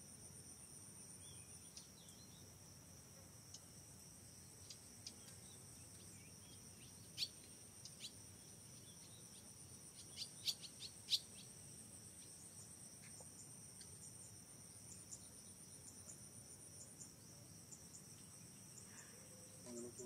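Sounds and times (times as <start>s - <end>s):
insect chorus: 0.0s - 20.0s
bird chirps: 4.6s - 8.2s, 8.8s - 11.5s.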